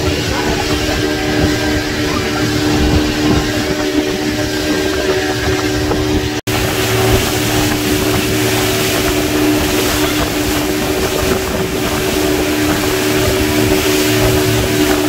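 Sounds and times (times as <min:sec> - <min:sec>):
motorboat engine running: 0:00.0 - 0:15.0
rushing water: 0:00.0 - 0:15.0
wind buffeting microphone: 0:00.0 - 0:15.0.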